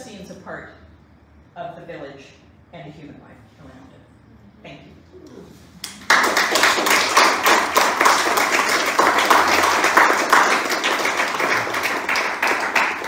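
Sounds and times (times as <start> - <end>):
audience applauding: 5.8 - 13.0.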